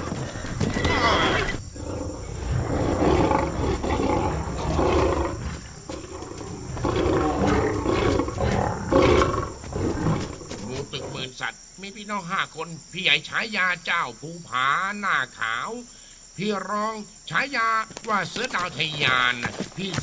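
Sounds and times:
big cats roaring: 0.0s - 11.3s.

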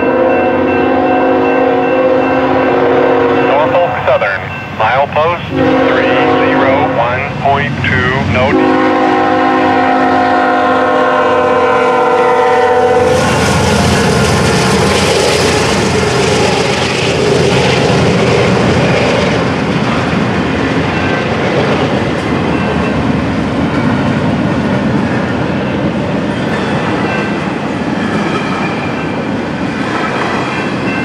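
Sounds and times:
train air horn chord: 0.0s - 4.0s, 5.5s - 7.3s, 8.4s - 13.8s
clickety-clack of freight cars: 0.0s - 31.0s
train wheels rumbling on rails: 0.0s - 31.0s.

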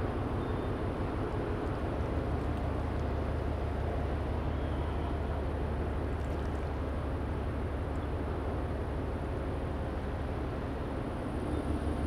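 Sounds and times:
ship engine rumble: 0.0s - 12.0s.

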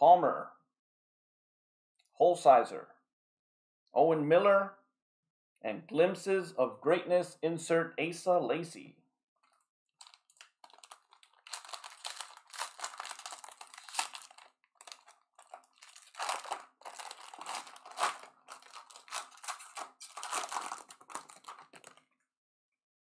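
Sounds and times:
foil wrapper tearing and crinkling: 10.0s - 22.0s.

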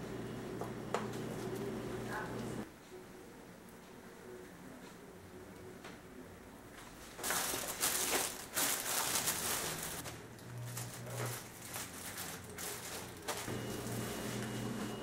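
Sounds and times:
plastic sheet crinkling: 7.0s - 14.4s.

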